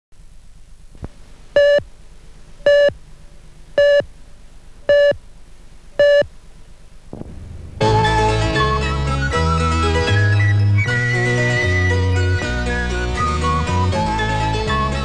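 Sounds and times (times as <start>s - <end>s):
low steady hum: 0.2s - 12.9s
countdown beeps: 2.7s - 2.9s, 3.8s - 4.0s, 4.9s - 5.2s, 6.0s - 6.2s.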